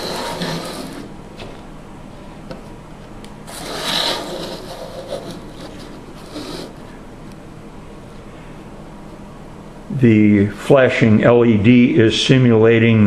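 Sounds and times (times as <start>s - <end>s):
cardboard box scraping on table: 0.0s - 1.2s, 3.5s - 6.9s.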